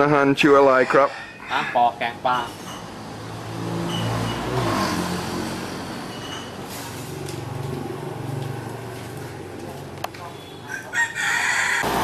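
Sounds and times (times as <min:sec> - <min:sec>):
vehicle engine passing by: 0:02.8 - 0:10.0, 0:11.7 - 0:12.0.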